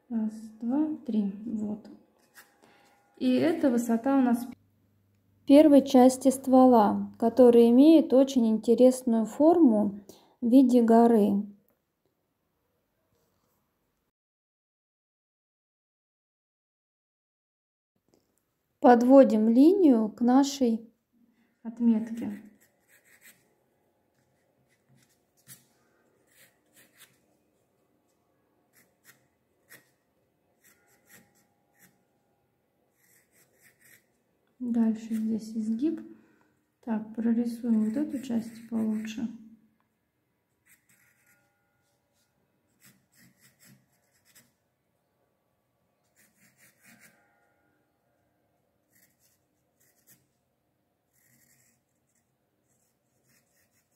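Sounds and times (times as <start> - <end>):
pencil strokes on paper: 21.9 - 23.5, 24.2 - 27.2, 28.7 - 30.0, 30.6 - 32.0, 32.9 - 34.1, 37.4 - 39.3, 40.6 - 44.6, 46.0 - 47.2, 48.8 - 50.4, 51.1 - 53.9.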